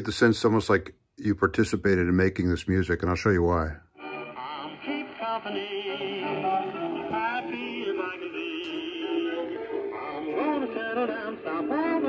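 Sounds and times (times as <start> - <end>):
music with singing over radio speaker: 3.9 - 12.0.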